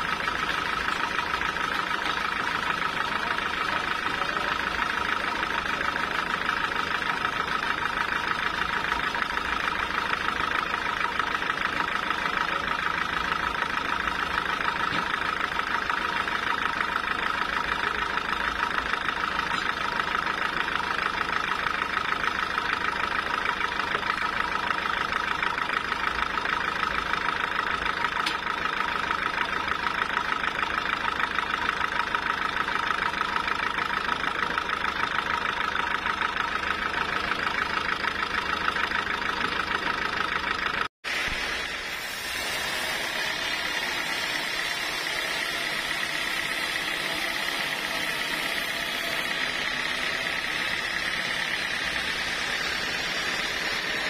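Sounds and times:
band sawmill blade whining: 0:36.4 - 0:54.0.

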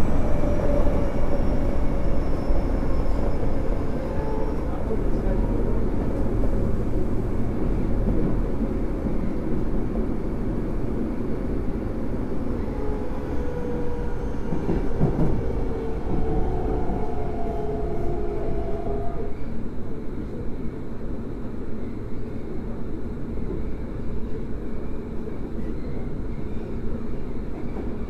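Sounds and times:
train wheels rumbling on track: 0:00.0 - 0:28.0.

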